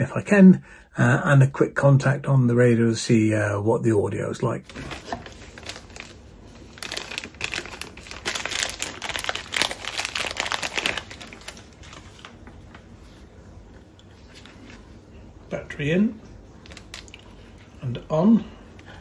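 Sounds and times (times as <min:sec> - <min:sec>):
plastic bag crinkling: 0:04.6 - 0:13.2, 0:16.6 - 0:17.9.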